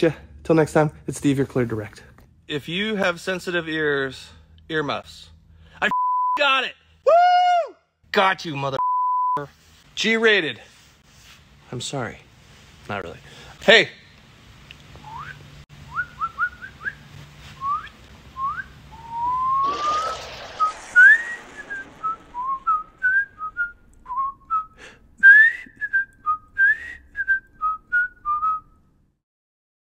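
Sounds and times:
person whistling: 0:15.0 - 0:28.8
brief hiss: 0:19.0 - 0:24.1.

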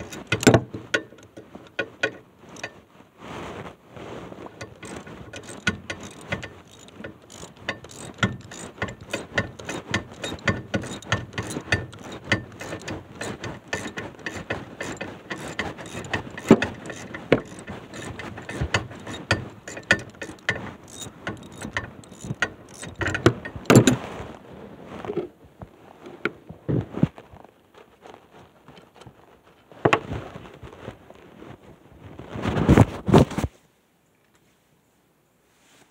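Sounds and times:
ratchet wrench clicking: 0:04.6 - 0:23.9.

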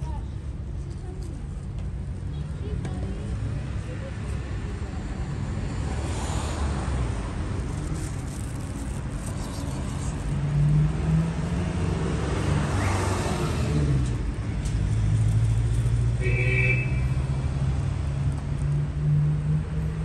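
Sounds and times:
vehicle passing whoosh: 0:05.6 - 0:16.2
vehicle engine humming: 0:06.8 - 0:20.0.

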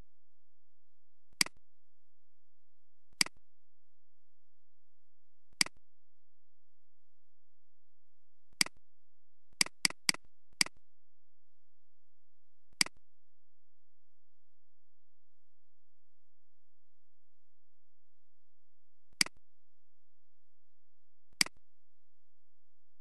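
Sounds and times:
computer mouse clicks: 0:01.3 - 0:01.6, 0:03.1 - 0:03.4, 0:05.6 - 0:05.8, 0:08.5 - 0:08.8, 0:09.6 - 0:10.8, 0:12.7 - 0:13.0, 0:19.1 - 0:19.4, 0:21.4 - 0:21.6.

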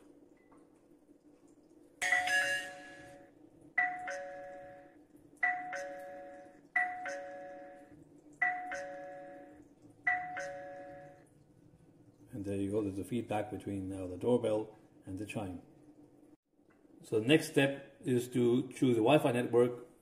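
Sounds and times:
doorbell two-note chime: 0:02.0 - 0:09.5, 0:10.1 - 0:11.2.

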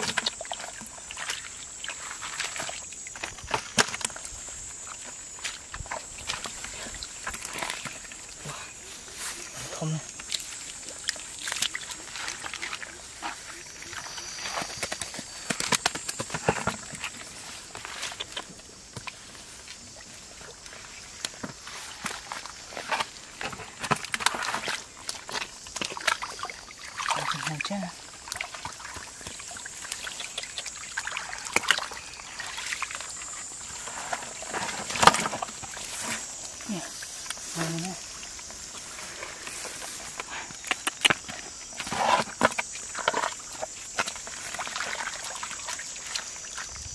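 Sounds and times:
basket scooping through water: 0:00.0 - 0:46.9
muddy water trickling: 0:00.0 - 0:46.9
hands digging in wet mud: 0:20.4 - 0:46.7.

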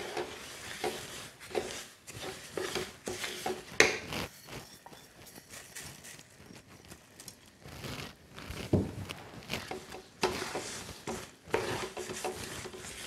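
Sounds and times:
wooden spatula scraping a pan: 0:00.0 - 0:05.9, 0:07.6 - 0:13.0.

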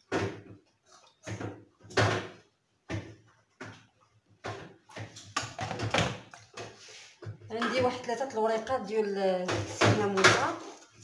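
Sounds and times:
dishes clattering on stone countertop: 0:05.2 - 0:06.8.

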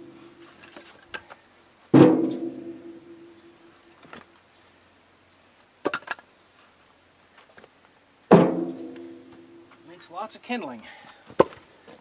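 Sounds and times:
firewood clunking on woodpile: 0:01.9 - 0:02.7, 0:05.8 - 0:06.2, 0:11.3 - 0:11.6.

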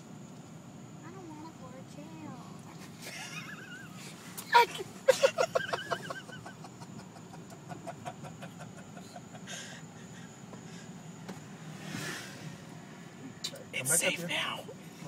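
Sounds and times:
car hum from inside cabin: 0:00.0 - 0:15.0
child giggling: 0:04.6 - 0:07.5.

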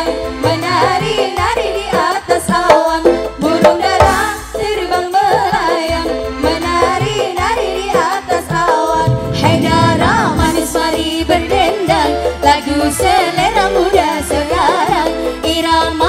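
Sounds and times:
hand drum beat: 0:00.0 - 0:04.4
keyboard: 0:00.0 - 0:16.0
wavering lead melody with vibrato: 0:09.0 - 0:12.3.

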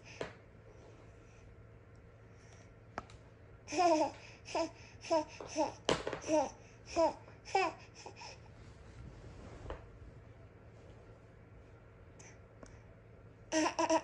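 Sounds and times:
baby laughing: 0:03.7 - 0:05.7, 0:13.5 - 0:14.0.

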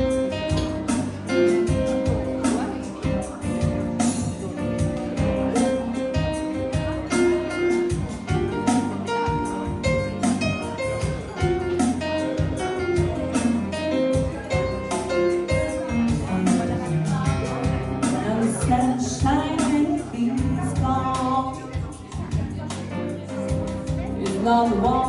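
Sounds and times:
percussive beat: 0:00.0 - 0:19.4
bass: 0:00.0 - 0:25.0
electric keyboard: 0:00.0 - 0:25.0.

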